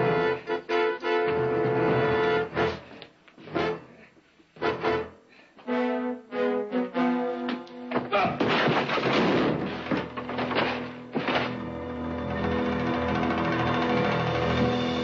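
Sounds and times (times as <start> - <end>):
fistfight thuds and crashes: 8.0 - 11.6.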